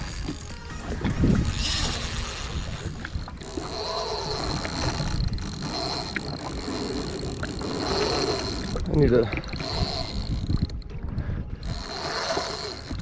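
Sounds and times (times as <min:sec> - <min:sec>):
waves: 0:00.0 - 0:13.0
wind on microphone: 0:00.0 - 0:13.0.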